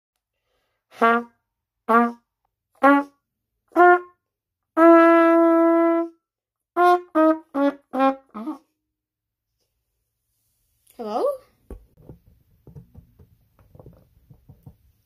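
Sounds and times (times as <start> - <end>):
trumpet playing slow phrase: 0.9 - 1.3, 4.8 - 6.2.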